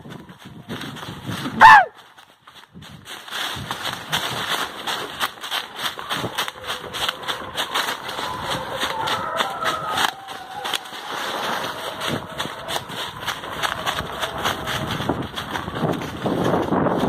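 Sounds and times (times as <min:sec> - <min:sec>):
wind on microphone: 0:00.0 - 0:05.3, 0:06.0 - 0:17.0
grass and brush rustling: 0:00.0 - 0:17.0
short high call: 0:01.6 - 0:02.0.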